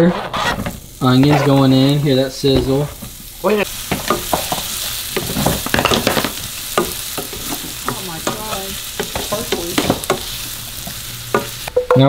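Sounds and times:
onions sizzling in butter: 0:00.1 - 0:11.9
wooden spatula scraping and tapping pan: 0:03.9 - 0:12.0.

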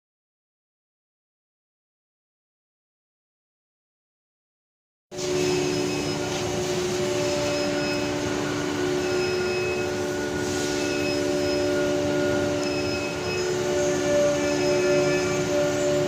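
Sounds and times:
factory machinery drone: 0:05.1 - 0:16.0
faint short high tones: 0:05.2 - 0:16.0.

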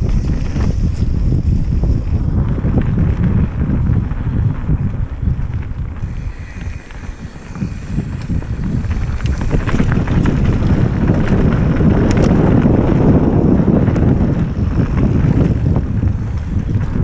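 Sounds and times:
bike clicks and rattles: 0:00.0 - 0:17.0
bike tyre rumble on dirt: 0:00.0 - 0:17.0
wind buffeting microphone: 0:00.0 - 0:17.0.

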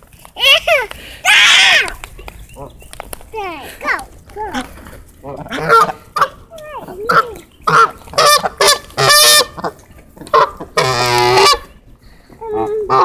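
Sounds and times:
geese honking: 0:04.5 - 0:11.8.

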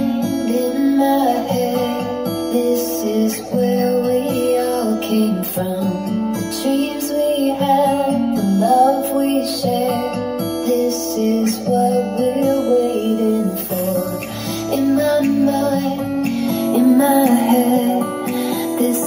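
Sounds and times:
pop song from tv speakers: 0:00.0 - 0:19.0.

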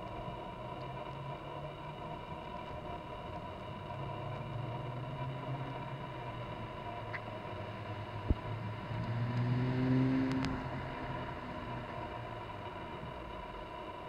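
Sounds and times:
car driving past: 0:07.7 - 0:12.2.

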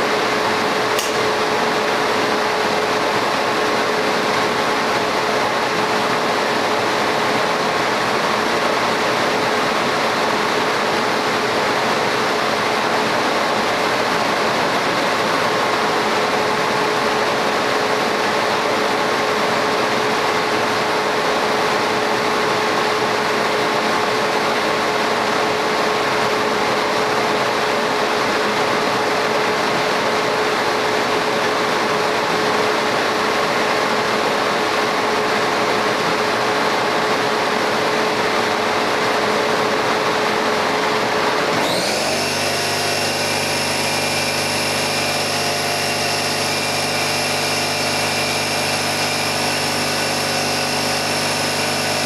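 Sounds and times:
constant machine hum: 0:00.0 - 0:52.0
laser cutter air rush: 0:41.5 - 0:52.0.

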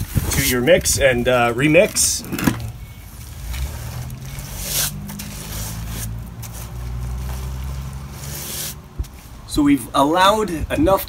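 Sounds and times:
trowel scraping wet mortar: 0:00.0 - 0:07.0, 0:07.7 - 0:08.8.

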